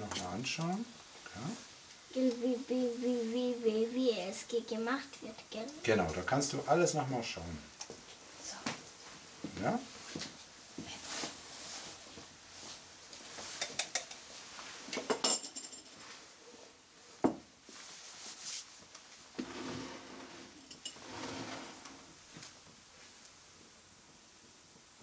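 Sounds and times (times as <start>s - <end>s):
glass and metal utensils clinking: 20.6s - 21.2s.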